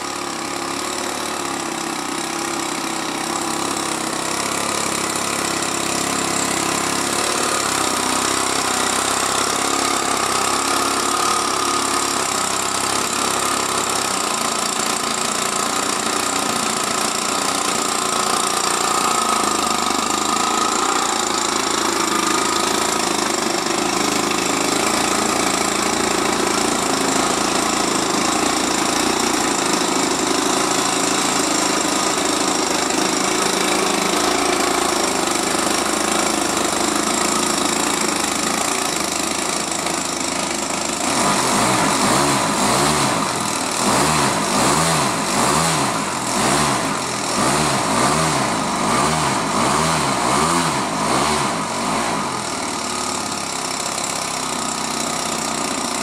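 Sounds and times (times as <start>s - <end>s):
model aircraft engine running: 0.0s - 56.0s.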